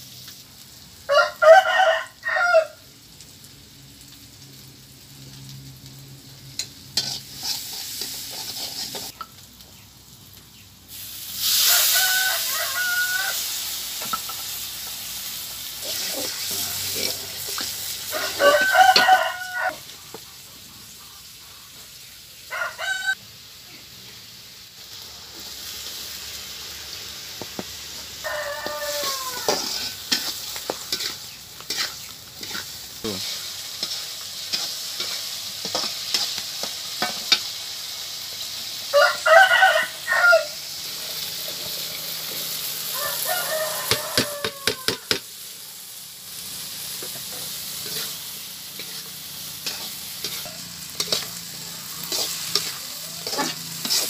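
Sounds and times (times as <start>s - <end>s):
food sizzling in a wok: 0.0s - 54.0s
rooster crowing: 1.1s - 2.9s, 11.6s - 13.6s, 15.9s - 19.8s, 22.4s - 23.2s, 27.9s - 30.0s, 38.9s - 40.8s, 42.7s - 45.2s, 50.3s - 54.0s
metal spatula scraping wok: 6.6s - 9.2s, 10.9s - 21.9s, 27.8s - 38.7s, 45.1s - 54.0s.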